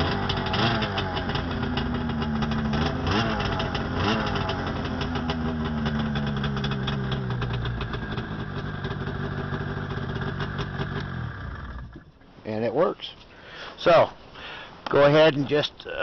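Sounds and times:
snowmobile engine revving and idling: 0.0 - 12.0.

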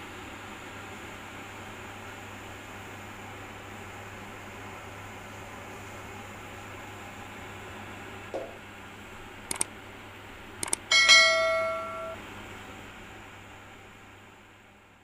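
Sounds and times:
steady background hiss: 8.4 - 13.5
quick double clicks: 9.5 - 9.7, 10.6 - 10.9
bell ding: 10.9 - 12.2.

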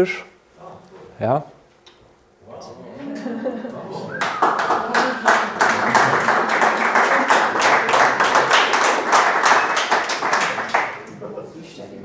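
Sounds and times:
audience clapping: 4.1 - 11.2.

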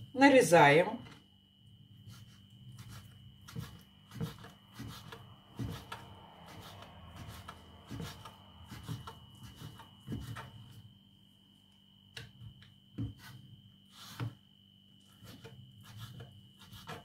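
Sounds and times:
knife chopping on wooden board: 2.8 - 10.5, 15.2 - 17.0.

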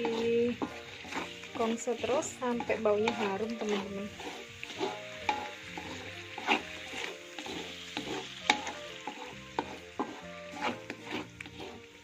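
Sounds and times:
paste sizzling in oil: 0.0 - 12.0
wooden spatula scraping wok: 0.0 - 12.0.

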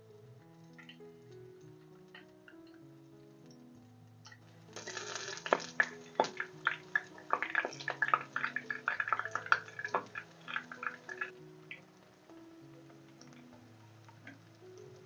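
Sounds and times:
chicken frying in hot oil: 4.3 - 15.0.

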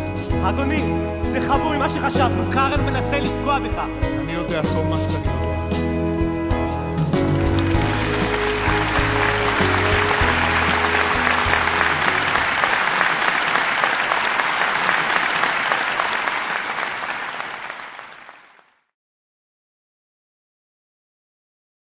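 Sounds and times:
audience applauding: 7.4 - 18.8
orchestra held chord: 7.7 - 13.8.

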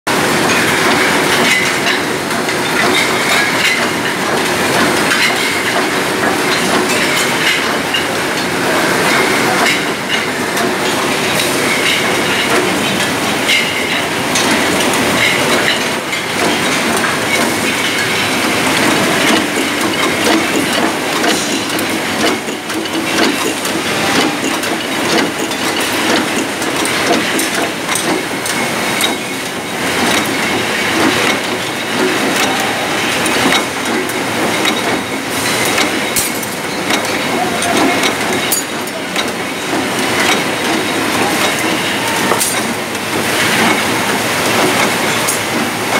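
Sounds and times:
machinery clattering: 0.1 - 45.9
glass bottles clinking: 8.9 - 33.7, 34.5 - 45.4.

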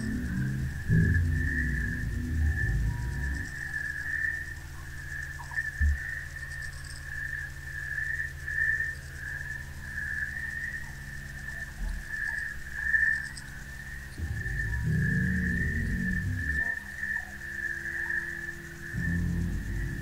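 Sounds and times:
soft low thumps: 0.0 - 3.7, 14.2 - 16.7, 19.0 - 20.0
low steady hum: 0.0 - 20.0.

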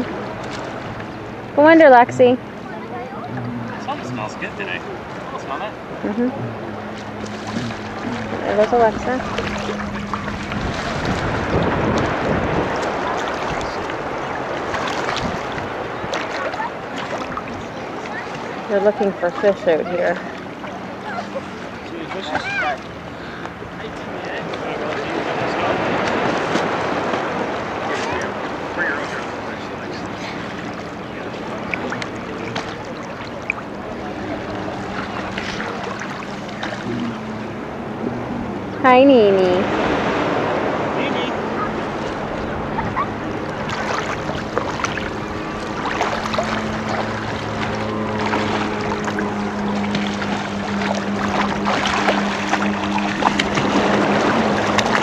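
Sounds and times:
steady low hum: 0.0 - 55.0
water splashing and sloshing: 0.0 - 55.0
wind noise on microphone: 9.2 - 14.0, 15.0 - 16.1.

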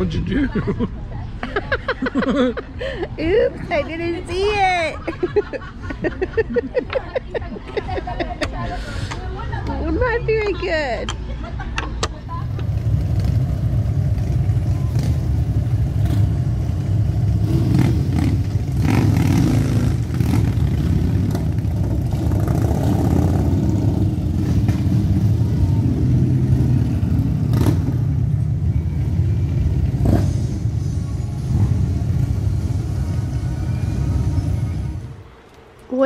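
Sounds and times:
motorcycles riding slowly past: 12.2 - 36.0.

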